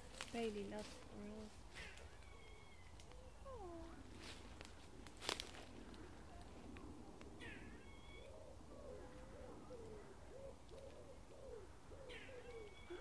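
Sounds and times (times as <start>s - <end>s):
squirrel calling: 1.8s - 3.9s, 11.4s - 13.0s.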